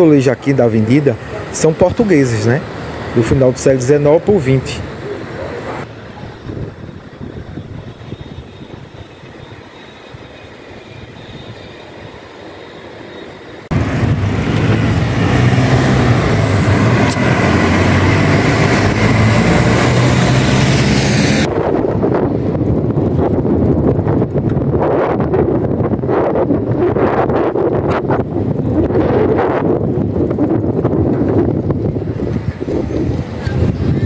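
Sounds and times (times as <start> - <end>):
faint street background: 0.0 - 34.0
wind rumble on microphone: 5.7 - 11.7, 13.7 - 34.0.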